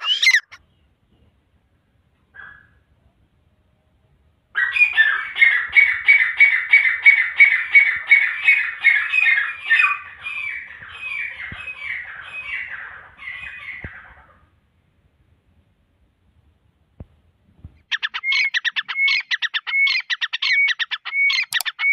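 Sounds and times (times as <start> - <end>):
francolin calling: 0.0 - 0.6, 17.9 - 21.9.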